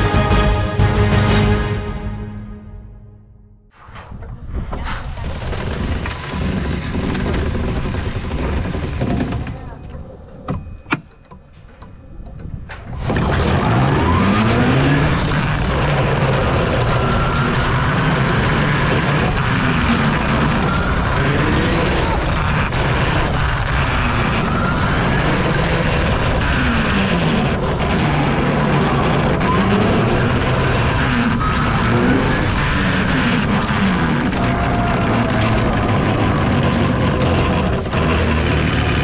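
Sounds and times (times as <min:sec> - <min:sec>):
wind rushing over microphone: 0:04.0 - 0:09.7.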